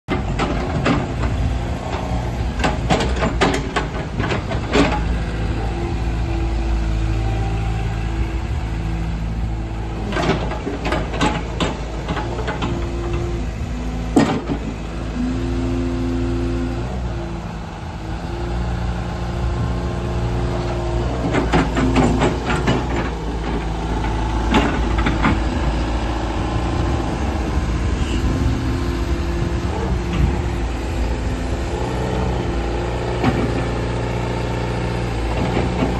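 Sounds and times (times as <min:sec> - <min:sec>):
metallic knocks and clanks: 0:00.1 - 0:05.1, 0:10.0 - 0:13.2, 0:14.2 - 0:14.8, 0:21.2 - 0:25.7
excavator diesel engine: 0:00.1 - 0:35.9
hydraulic whine: 0:19.3 - 0:35.9.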